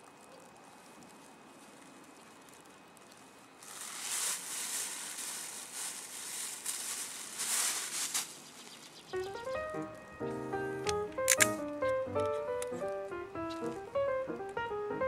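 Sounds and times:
plastic bag crinkling: 0.0s - 9.0s
music: 9.2s - 15.0s.

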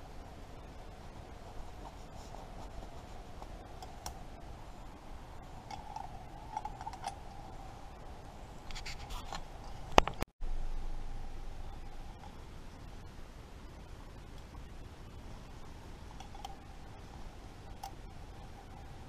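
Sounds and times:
faint steady hum: 0.0s - 19.0s
leather glove scratching and rubbing: 1.5s - 3.6s, 8.7s - 9.5s.

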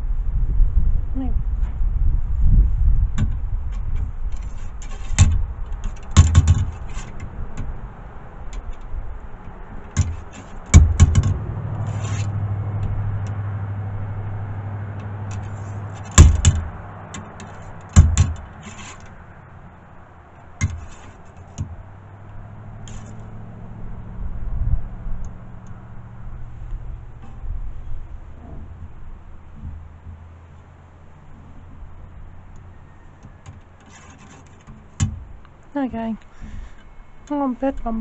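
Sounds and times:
ramrod scraping in rifle barrel: 3.7s - 7.4s, 10.0s - 12.4s, 15.0s - 19.2s, 20.6s - 21.6s, 22.8s - 23.3s, 33.6s - 34.9s
ramrod knocking against barrel: 4.9s - 7.7s, 9.9s - 13.3s, 15.0s - 19.0s.

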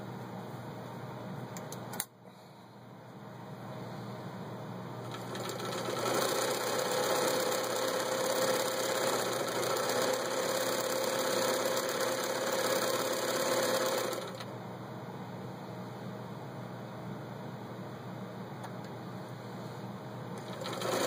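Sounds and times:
sewing machine stitching: 5.1s - 14.4s, 20.4s - 21.0s.

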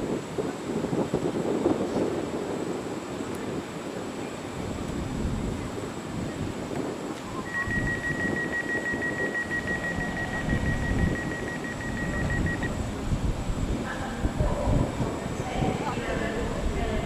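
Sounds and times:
railway station rumble: 0.0s - 17.0s
high-pitched electronic beep: 7.3s - 12.8s.

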